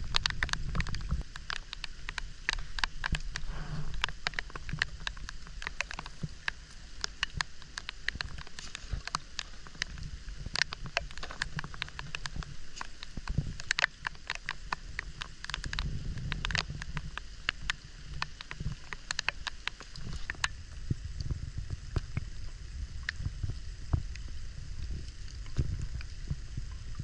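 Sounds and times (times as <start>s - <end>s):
rain hiss on water: 0.0s - 27.0s
raindrops tapping on wooden boat: 0.0s - 27.0s.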